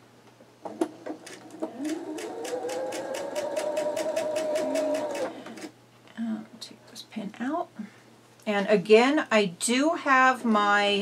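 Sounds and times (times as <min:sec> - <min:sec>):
electric sewing machine stitching: 0:01.2 - 0:05.7.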